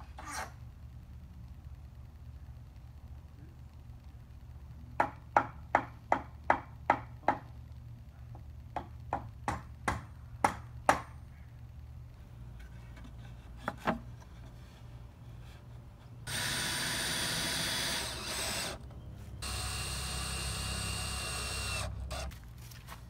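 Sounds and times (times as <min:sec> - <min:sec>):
hammer striking wooden beam: 0:05.0 - 0:07.5, 0:08.8 - 0:11.1.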